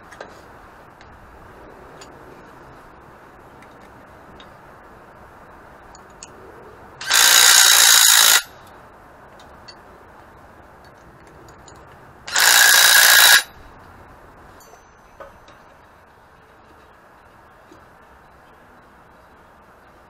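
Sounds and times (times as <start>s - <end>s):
cordless drill whining on metal: 7.0s - 8.5s, 12.3s - 13.5s.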